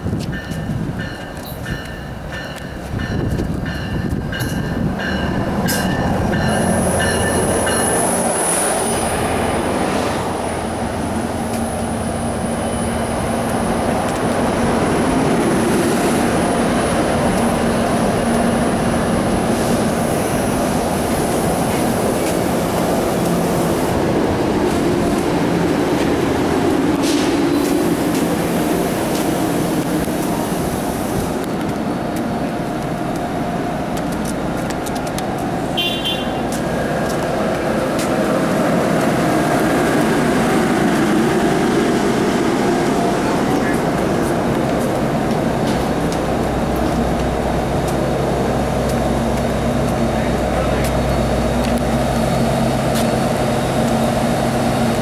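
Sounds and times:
train rumble: 0.0s - 55.0s
train bell ringing: 0.3s - 9.2s.

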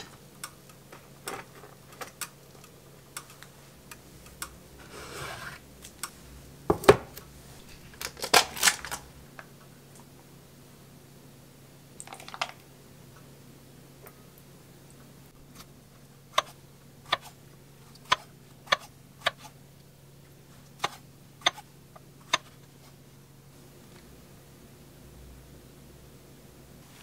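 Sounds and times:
faint low hum: 0.0s - 27.0s.

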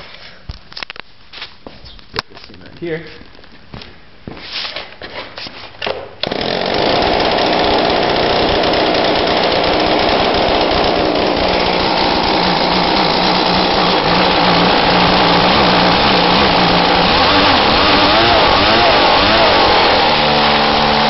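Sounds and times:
leaf blower engine running: 6.2s - 21.0s
pull-start knocks: 6.2s - 21.0s.

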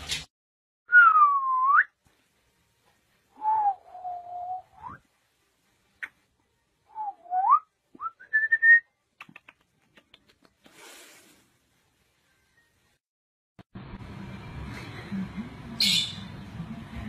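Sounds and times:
breathy hiss: 10.7s - 11.6s.

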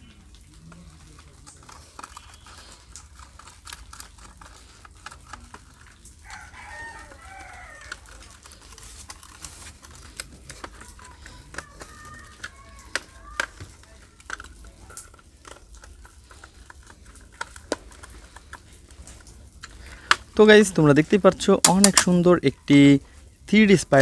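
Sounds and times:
rooster crowing: 6.2s - 8.4s.

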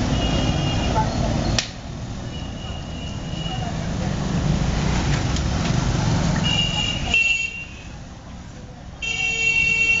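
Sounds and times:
car horn honking: 9.0s - 10.0s.

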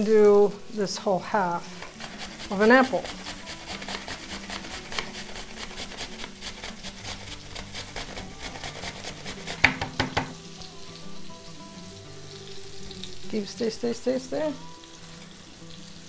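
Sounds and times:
apple grated on metal grater: 1.6s - 10.2s.

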